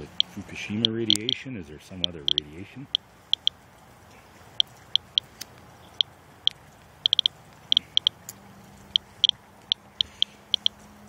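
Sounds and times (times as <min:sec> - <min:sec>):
geiger counter clicking: 0:00.0 - 0:01.4, 0:02.0 - 0:03.6, 0:04.6 - 0:05.3, 0:06.0 - 0:08.3, 0:08.9 - 0:10.8.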